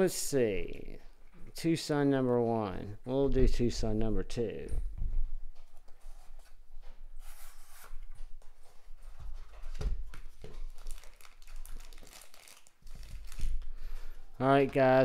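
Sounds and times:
plastic crinkling: 10.0 - 14.2.

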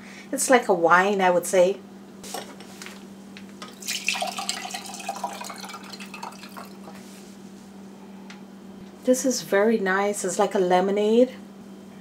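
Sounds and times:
liquid trickling into glass: 3.7 - 7.0.

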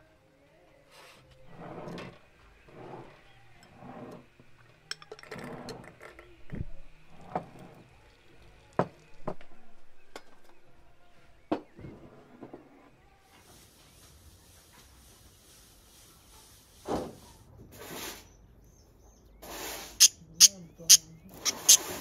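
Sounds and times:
glass and metal clinking: 3.5 - 6.3.

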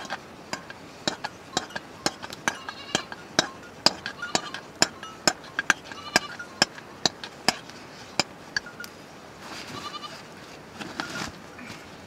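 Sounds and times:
metal spoon clinking on pot: 0.0 - 8.9.

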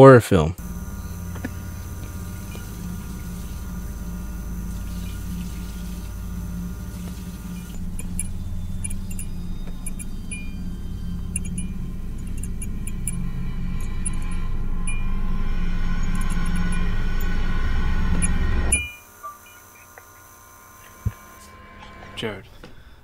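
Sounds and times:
tap running water: 0.6 - 8.3
low droning tone: 0.6 - 23.0
high tinkling clicks: 7.1 - 15.2.

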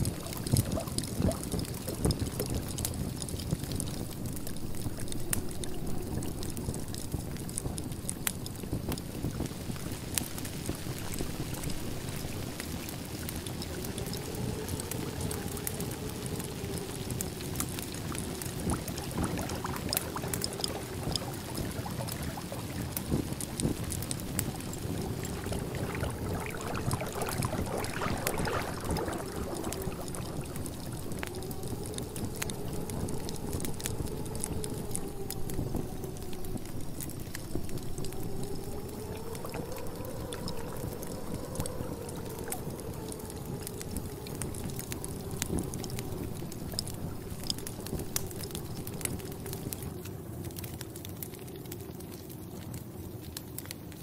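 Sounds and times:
low background rumble: 0.0 - 50.4
cafe noise bed: 17.1 - 33.0
liquid pouring: 18.4 - 32.9.

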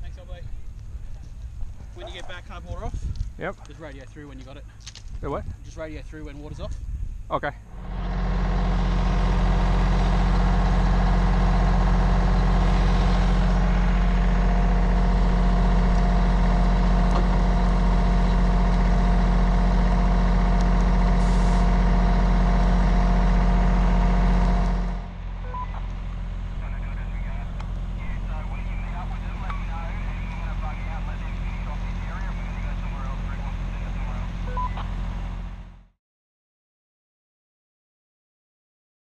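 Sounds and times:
diesel engine running: 7.6 - 35.9
faint steady whine: 22.9 - 35.5.

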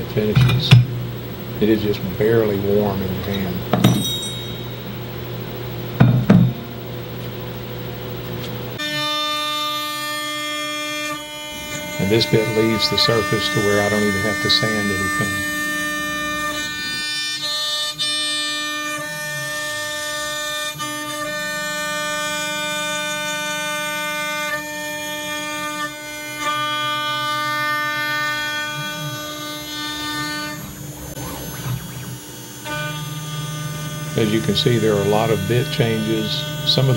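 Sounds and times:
low steady hum: 0.0 - 18.2, 27.2 - 36.9
router spindle high-pitched whine: 0.0 - 36.9
metal tools clinking: 3.3 - 5.0.

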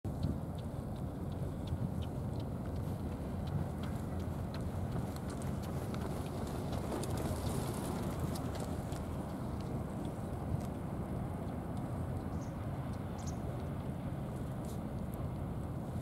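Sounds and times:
low outdoor rumble: 0.1 - 16.0
faint small clicks: 8.2 - 15.8.

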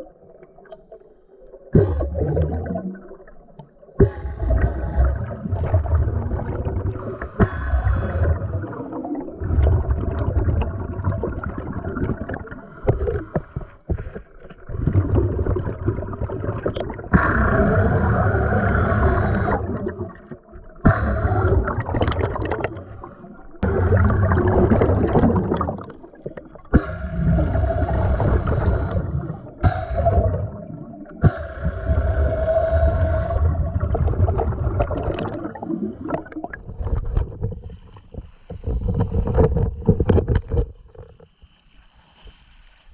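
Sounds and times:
pneumatic drill underwater: 1.8 - 2.6, 4.0 - 5.8, 7.0 - 8.8, 12.0 - 25.7, 26.7 - 30.5, 31.2 - 33.5, 35.1 - 41.0
air bubbles: 1.8 - 13.2, 14.6 - 22.9, 23.6 - 37.8.

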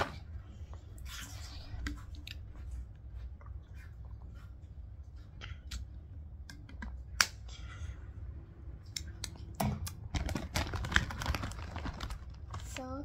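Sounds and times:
foil crisp packet crackling: 10.1 - 13.0.

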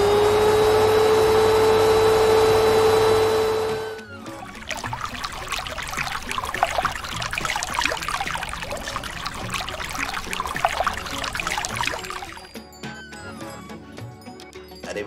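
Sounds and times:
water running from a tap: 0.0 - 12.6
plates washed in water: 1.6 - 12.5.

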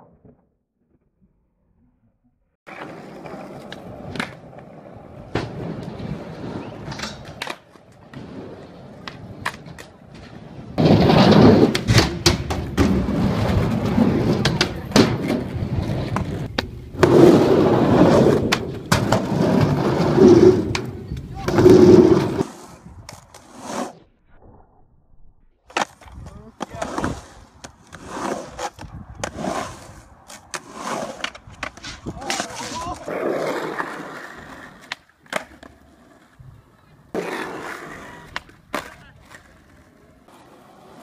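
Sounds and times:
skateboard wheels rolling on concrete: 2.6 - 24.2, 25.6 - 41.0
skateboard clacking on ground: 2.7 - 6.0, 6.6 - 8.2, 8.9 - 17.4, 25.7 - 41.0.

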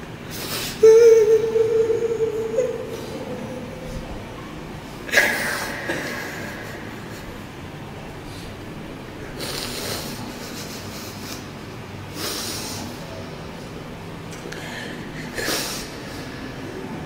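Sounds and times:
man weeping: 0.7 - 4.3, 5.1 - 7.6
snorting sniffs: 9.4 - 11.4, 12.2 - 12.9
quiet breathing: 14.5 - 17.0.

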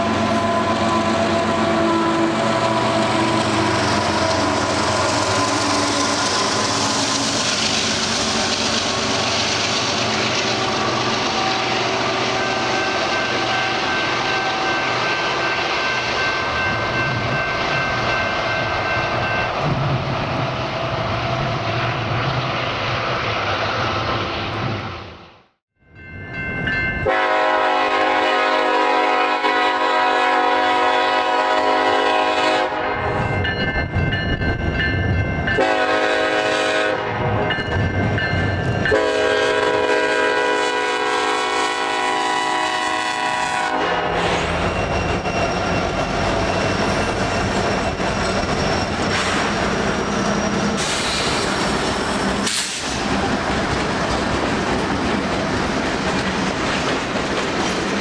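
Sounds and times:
train wheels rumbling on rail: 0.0 - 25.2, 26.2 - 58.0
locomotive horn chord: 27.0 - 33.2, 35.6 - 37.4, 38.9 - 44.4
high wheel squeals: 44.2 - 52.9.

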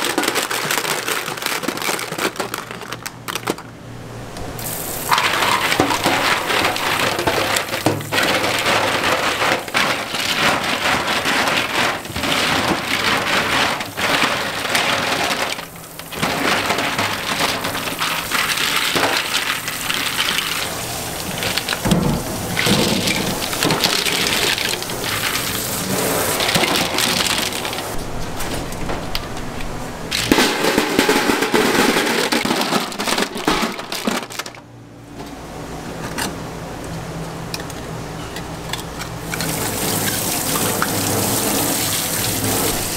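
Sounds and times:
clam shells clattering and scraping: 0.0 - 3.7, 5.1 - 28.0, 30.1 - 34.6, 38.4 - 42.9
tap water running into sink: 39.3 - 42.9.

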